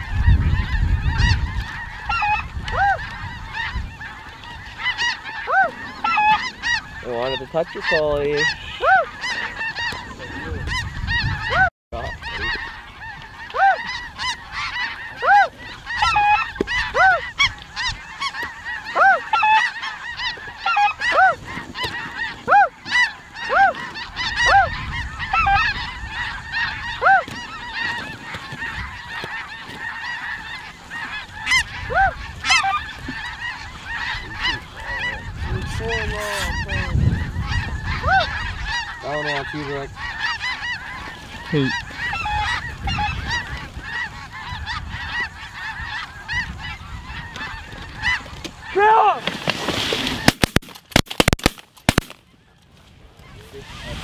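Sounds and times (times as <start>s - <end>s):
wind rumble on microphone: 0.0s - 7.1s, 8.1s - 18.3s, 23.4s - 29.3s, 30.9s - 48.6s, 52.8s - 54.0s
geese honking: 0.0s - 54.0s.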